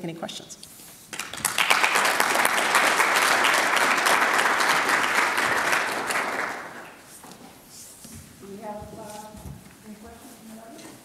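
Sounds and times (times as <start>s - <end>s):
audience applauding: 1.1s - 7.1s.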